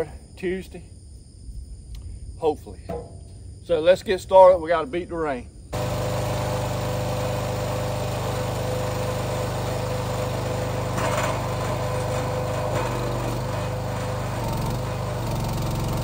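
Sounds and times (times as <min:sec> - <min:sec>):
small gasoline engine running: 0:05.8 - 0:16.0.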